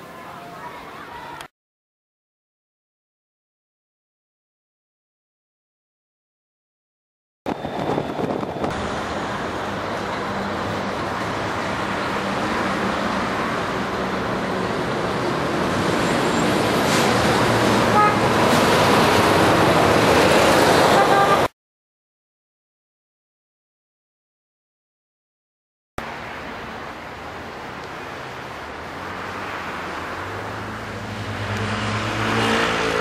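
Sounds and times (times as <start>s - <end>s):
road traffic engine and tyre noise: 7.5s - 21.5s, 26.0s - 33.0s
car horn toot: 17.9s - 18.3s, 20.9s - 21.5s.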